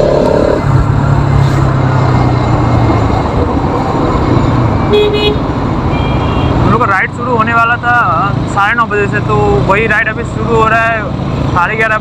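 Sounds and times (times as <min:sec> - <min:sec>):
wind and road noise: 0:00.0 - 0:12.0
vehicle horn beep: 0:04.9 - 0:06.7.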